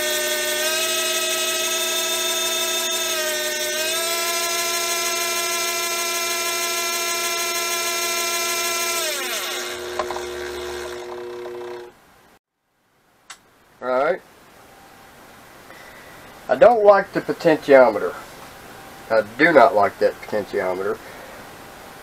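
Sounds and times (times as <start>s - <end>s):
motor whining and winding down: 0.0s - 11.9s
low steady hum: 9.8s - 22.0s.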